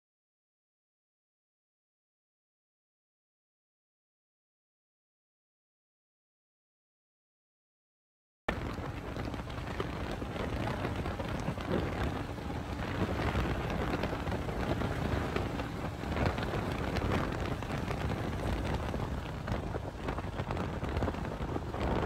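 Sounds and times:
vehicle road and engine noise: 8.5s - 22.0s
wind on microphone: 8.5s - 22.0s.

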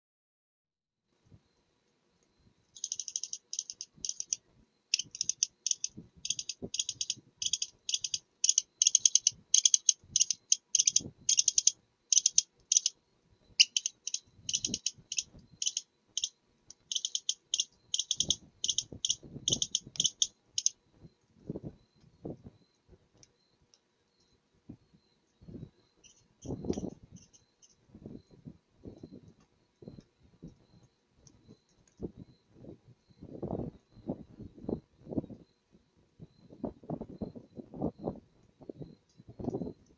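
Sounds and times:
fox high-pitched chittering: 2.8s - 13.0s, 13.6s - 20.8s.

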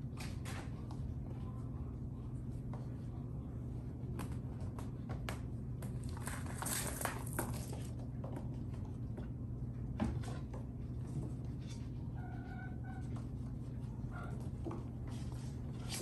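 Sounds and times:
steady low hum: 0.0s - 16.0s
kittens paw taps and scrabbling: 4.1s - 12.0s.

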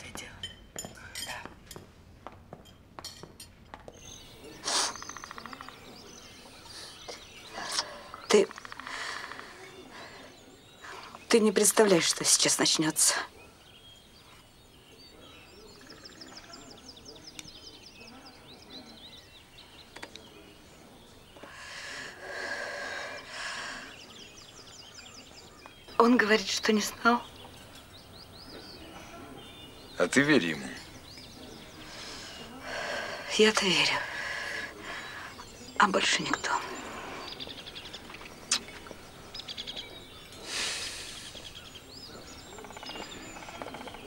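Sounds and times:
birds chirping and trilling: 2.8s - 44.0s
breathy exhale of smoke: 40.4s - 41.4s.

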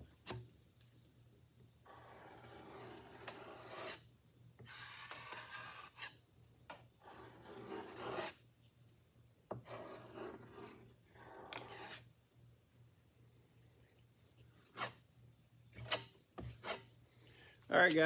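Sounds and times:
putty knife rasping filler: 1.9s - 6.2s, 7.0s - 8.4s, 9.5s - 12.1s, 14.6s - 15.0s, 15.8s - 16.9s.

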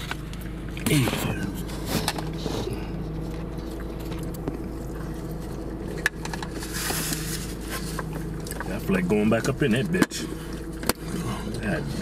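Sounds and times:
car idling hum: 0.0s - 12.0s.

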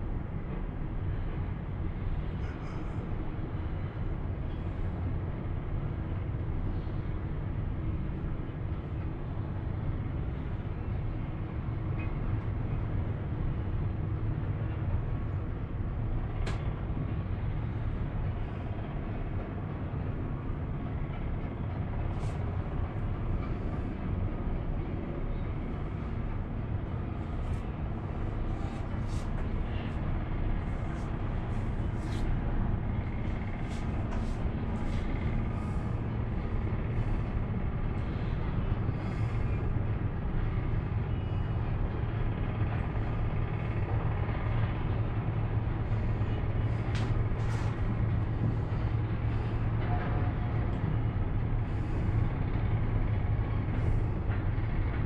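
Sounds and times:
cable car low rumble: 0.0s - 55.0s.

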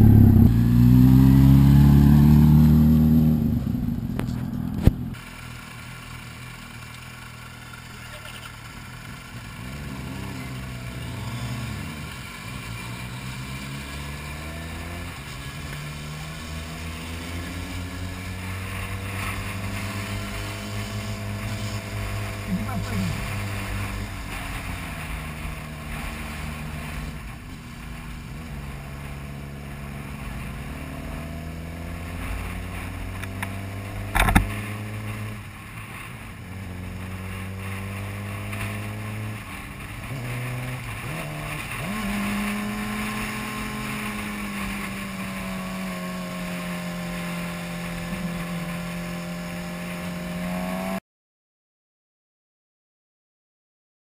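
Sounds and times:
motorcycle engine running: 0.0s - 51.0s
sharp thump: 34.1s - 34.5s.

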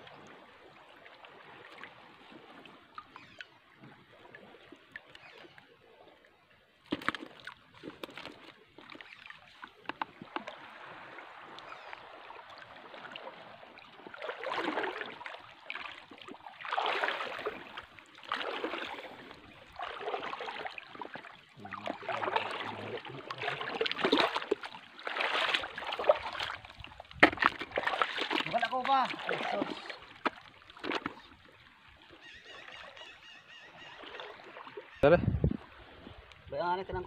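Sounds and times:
footsteps sloshing through water: 6.8s - 35.0s.

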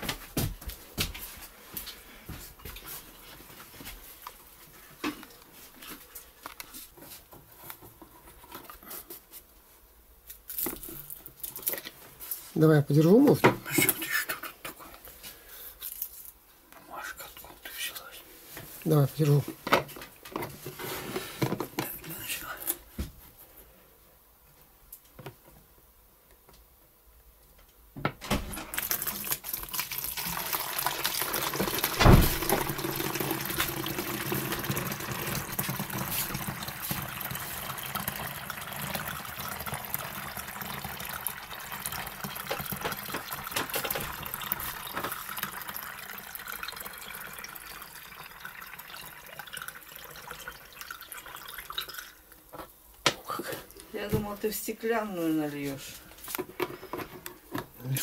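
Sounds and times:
liquid pouring into plastic bottle: 28.7s - 52.4s
loud knock: 32.0s - 32.7s.

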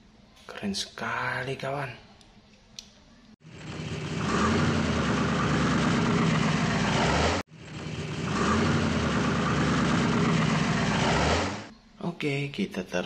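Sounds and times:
car engine running: 3.4s - 11.7s.

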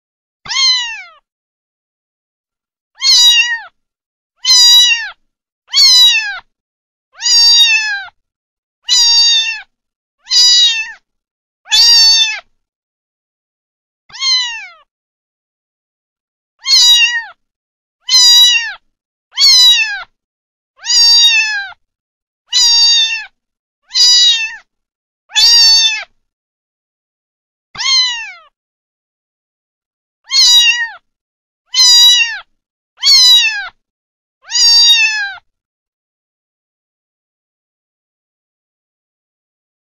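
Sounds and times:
kitten meowing: 0.5s - 1.2s, 3.0s - 3.8s, 4.4s - 6.5s, 7.2s - 8.2s, 8.9s - 11.0s, 11.7s - 12.5s, 14.1s - 14.9s, 16.6s - 17.4s, 18.0s - 18.8s, 19.4s - 20.1s, 20.8s - 21.8s, 22.5s - 24.7s, 25.3s - 26.2s, 27.8s - 28.5s, 30.3s - 31.1s, 31.7s - 33.8s, 34.4s - 35.5s.

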